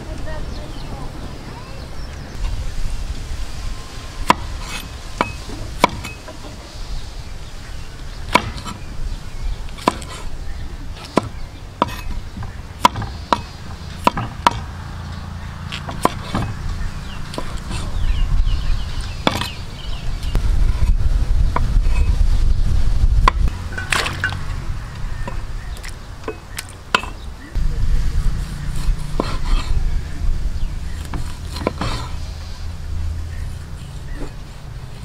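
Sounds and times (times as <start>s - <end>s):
cleaver chopping on wooden board: 4.2s - 6.2s, 8.3s - 8.8s, 9.8s - 10.3s, 11.0s - 14.7s, 15.7s - 16.6s, 19.2s - 19.6s, 23.2s - 24.3s, 28.8s - 29.7s, 31.0s - 32.2s
low rumble: 16.4s - 26.2s, 27.3s - 35.0s.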